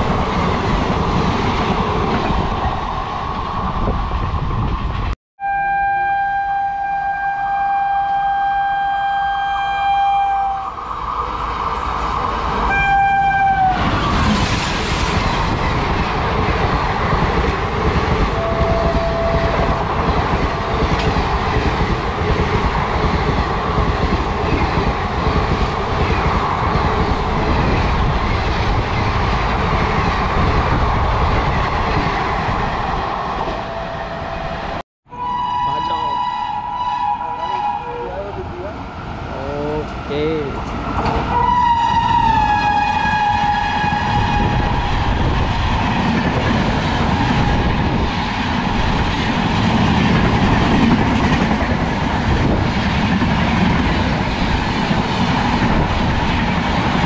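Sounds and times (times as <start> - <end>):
train rumbling past: 0.0 - 57.0
train horn blasts: 5.4 - 10.8, 12.7 - 13.8, 18.3 - 19.8, 35.1 - 38.3, 41.3 - 44.8.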